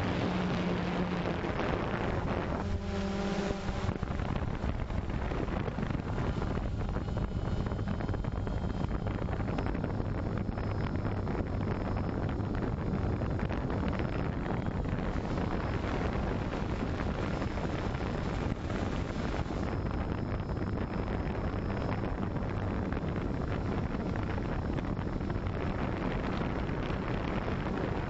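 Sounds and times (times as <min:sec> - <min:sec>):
drone propellers whirring: 0:00.0 - 0:20.2
low hum: 0:00.0 - 0:28.0
wind on microphone: 0:00.0 - 0:28.0.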